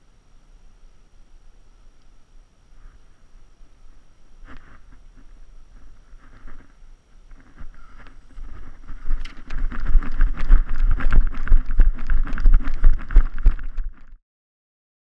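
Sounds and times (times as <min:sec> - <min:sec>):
camera jostling: 0:04.4 - 0:14.2
footsteps running on grass: 0:04.4 - 0:14.2
wind buffeting microphone: 0:04.8 - 0:14.1.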